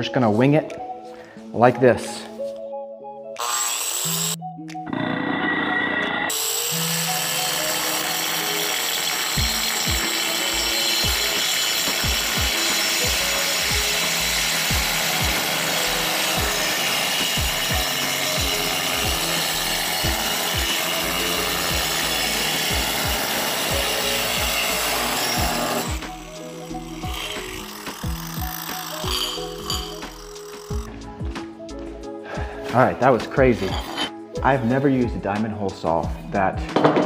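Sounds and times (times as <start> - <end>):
angle grinder cutting tile: 3.4 - 30.9, 33.5 - 34.2.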